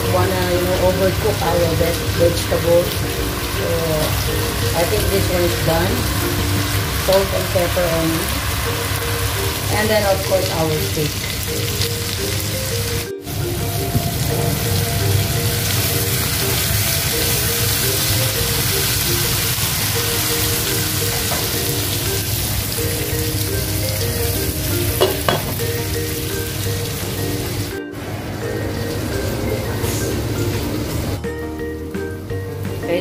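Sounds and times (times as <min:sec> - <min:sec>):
background music: 0:00.0 - 0:33.0
steak sizzling in a pan: 0:00.4 - 0:27.7.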